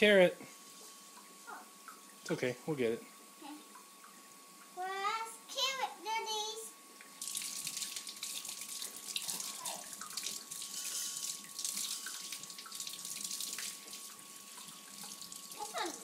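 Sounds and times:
faucet running into sink: 7.2 - 16.0.

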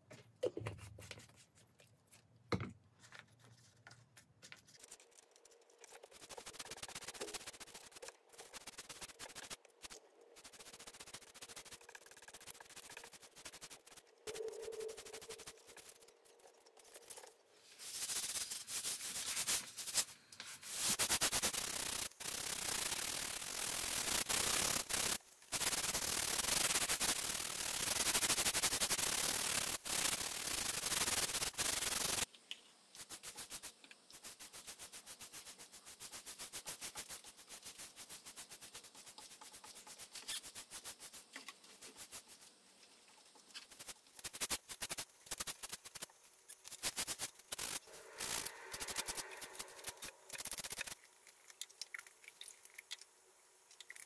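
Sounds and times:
sandpaper rubbing on wood: 4.7 - 16.1, 17.8 - 32.3, 33.0 - 42.4, 43.6 - 51.0.

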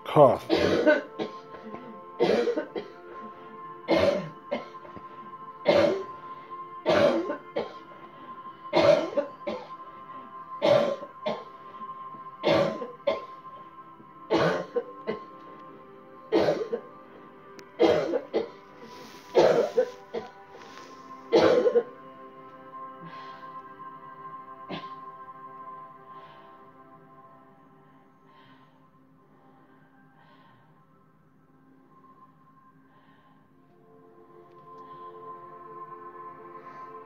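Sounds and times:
faint background music: 0.0 - 37.0
woman coughing: 0.5 - 3.0, 3.9 - 4.8, 5.6 - 6.1, 6.9 - 7.8, 8.7 - 9.7, 10.6 - 11.4, 12.4 - 13.3, 14.3 - 15.3, 16.3 - 16.8, 17.8 - 18.6, 19.3 - 20.3, 21.3 - 21.9.

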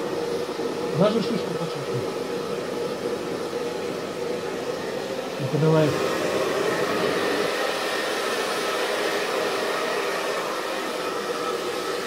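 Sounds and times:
hair dryer blowing air: 0.0 - 12.0.

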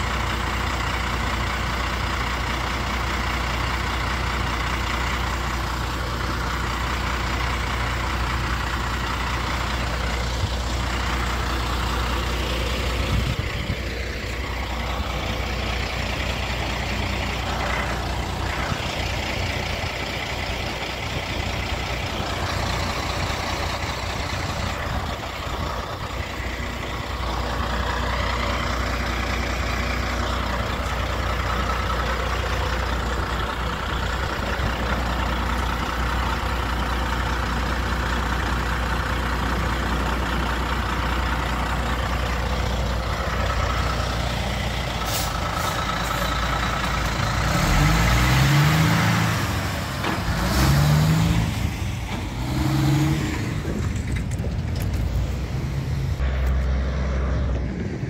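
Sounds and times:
heavy trucks driving past: 0.0 - 58.0
low rumble: 51.5 - 58.0.

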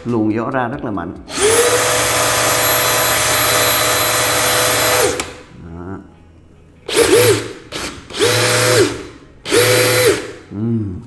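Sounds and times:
cordless drill whining: 1.3 - 5.5, 6.9 - 10.4.

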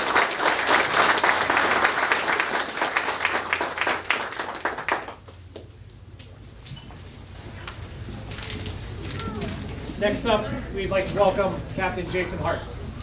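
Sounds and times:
small crowd clapping: 0.0 - 6.3.

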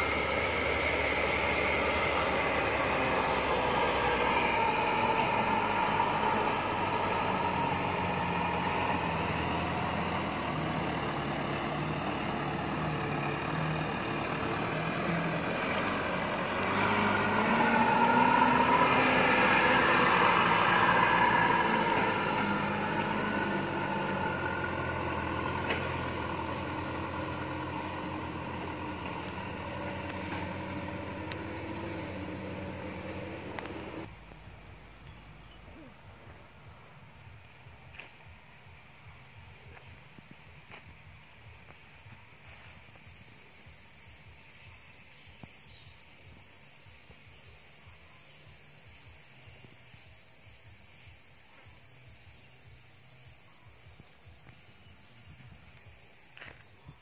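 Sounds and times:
dump truck diesel engine climbing: 0.0 - 43.9.

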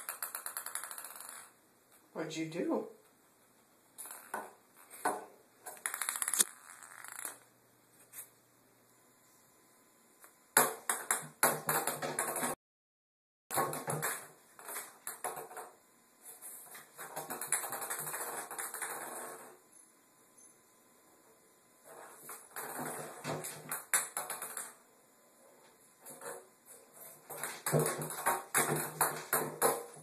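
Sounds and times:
ping pong ball bouncing on tile: 0.0 - 1.5, 5.8 - 7.4, 27.4 - 30.0.

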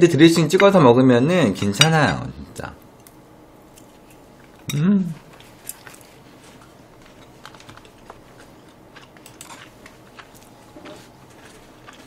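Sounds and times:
woman humming: 4.7 - 5.3.

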